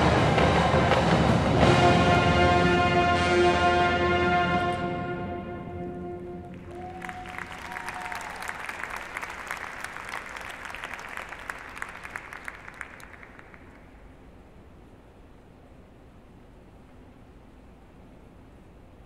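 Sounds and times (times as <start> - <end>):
audience applauding: 6.4 - 14.1.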